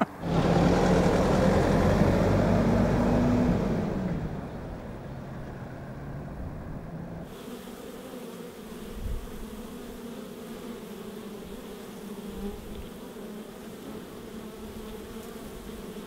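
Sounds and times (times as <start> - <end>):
bees buzzing: 7.1 - 16.0.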